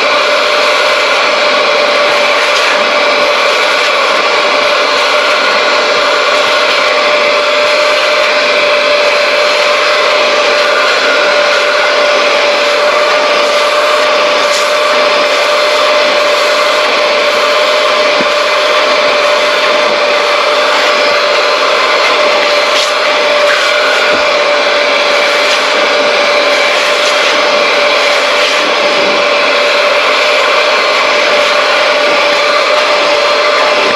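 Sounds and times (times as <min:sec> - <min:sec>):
vacuum motor whining: 0:00.0 - 0:33.9.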